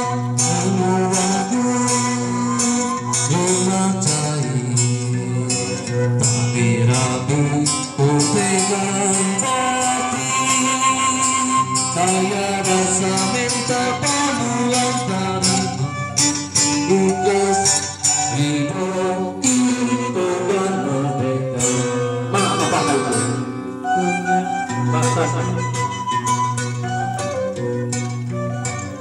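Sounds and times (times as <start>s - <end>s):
traditional music with singing: 0.0s - 29.0s.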